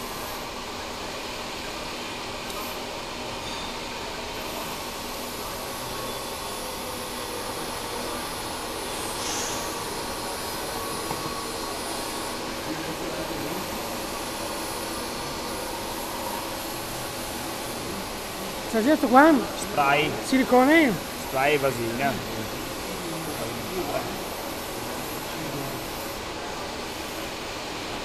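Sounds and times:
workshop machine hum: 0.0s - 28.0s
brief higher hiss: 9.0s - 12.4s.

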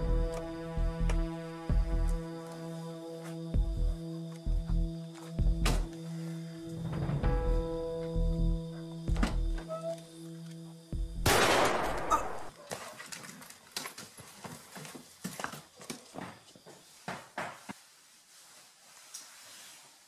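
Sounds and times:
pistol shot: 11.3s - 12.5s.

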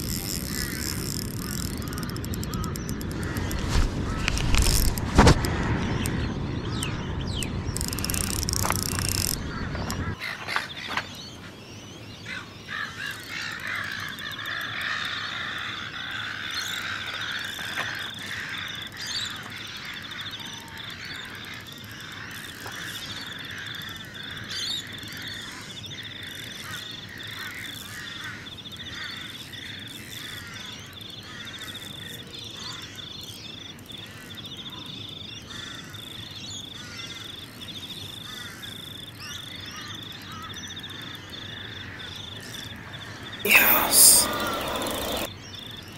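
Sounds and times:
insects trilling: 0.0s - 5.3s, 7.6s - 11.1s, 12.2s - 45.9s
faint clicks: 0.0s - 6.2s, 7.8s - 10.1s
frogs calling: 0.0s - 6.9s, 7.7s - 45.9s
short repeating calls: 43.5s - 45.3s.

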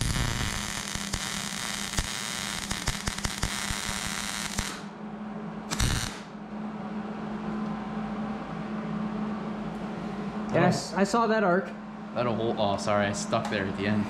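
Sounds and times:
welder arc crackling: 0.0s - 4.9s, 5.7s - 6.3s
steady low hum: 0.0s - 14.0s.

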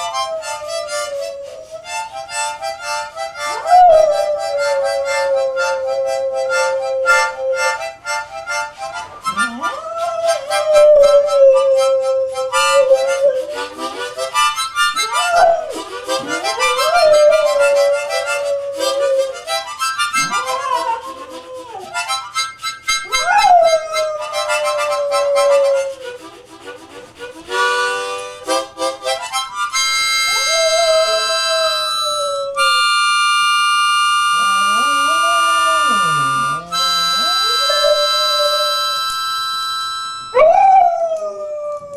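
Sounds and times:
dog howling: 0.0s - 1.9s, 3.4s - 7.9s, 9.3s - 13.9s, 15.0s - 22.2s, 23.0s - 26.0s, 30.2s - 33.0s, 34.2s - 39.1s, 40.3s - 41.9s
harmonica chords: 0.0s - 41.2s.

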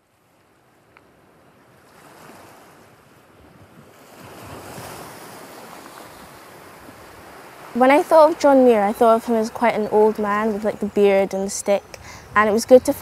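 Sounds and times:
sea waves washing in: 0.0s - 13.0s
wind: 0.0s - 13.0s.

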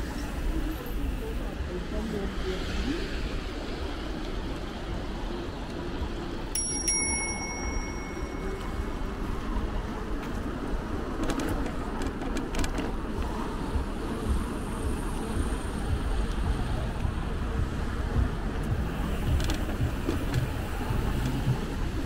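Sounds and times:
wind and road noise: 0.0s - 22.0s
bicycle bell ringing: 6.6s - 9.1s.

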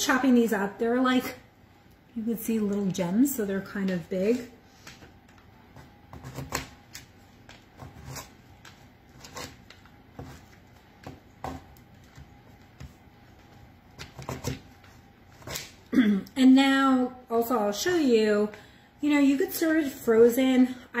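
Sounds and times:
knife chopping on plastic board: 5.7s - 7.0s, 9.2s - 13.0s, 14.0s - 14.7s.

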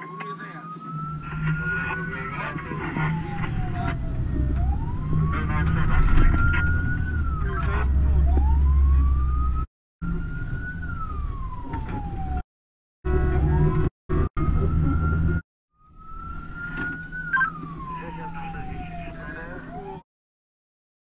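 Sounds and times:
fire engine siren wailing: 0.0s - 12.4s, 13.1s - 20.0s
diesel engine drone: 0.9s - 12.4s.

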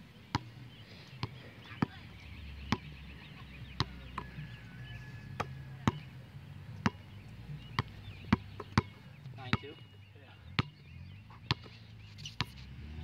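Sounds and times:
basketball bouncing on hard court: 5.4s - 6.0s, 7.8s - 9.6s.

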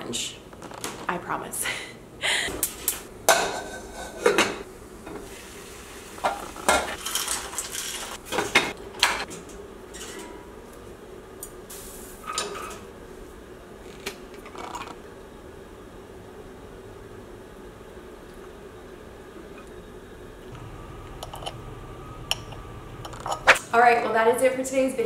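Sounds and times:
cookware clattering: 3.3s - 4.7s.

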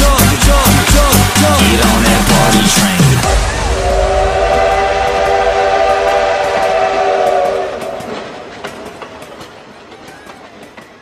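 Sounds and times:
rail clicks: 0.0s - 11.0s
train horn chord: 3.2s - 8.4s.

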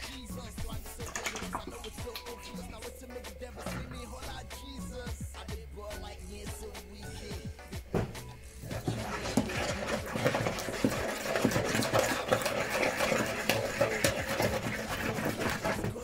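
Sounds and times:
spoon scraping and squelching paste: 0.0s - 5.1s, 8.4s - 16.0s.

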